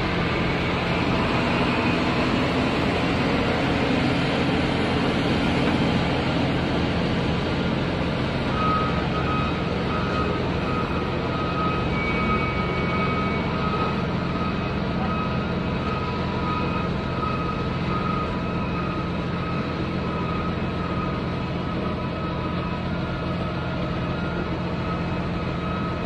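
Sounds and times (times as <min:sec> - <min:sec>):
heavy diesel engine running: 0:00.0 - 0:26.0
reversing alarm beeping: 0:00.0 - 0:26.0.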